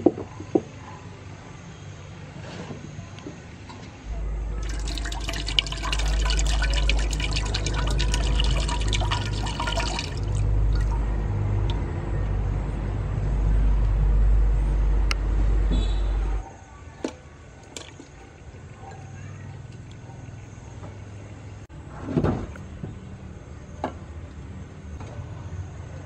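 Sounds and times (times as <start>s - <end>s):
water pouring into metal pot: 4.5s - 11.2s.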